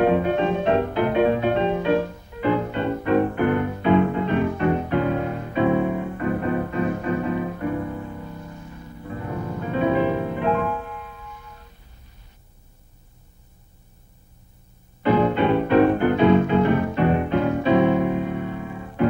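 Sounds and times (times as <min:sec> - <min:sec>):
piano playing chords: 0:00.0 - 0:11.8, 0:15.0 - 0:19.0.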